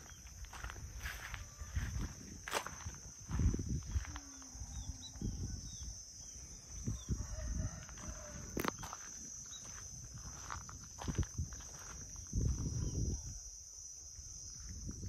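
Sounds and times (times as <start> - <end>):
footsteps through grass: 0.0 - 4.3, 7.8 - 12.6.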